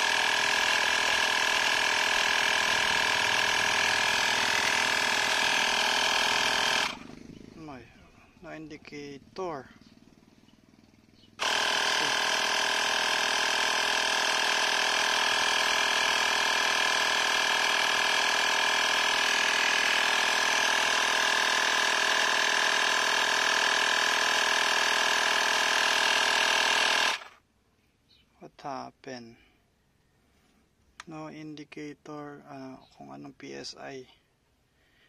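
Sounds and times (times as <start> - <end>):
air pump compressor droning: 0.0 - 9.8, 11.4 - 27.4.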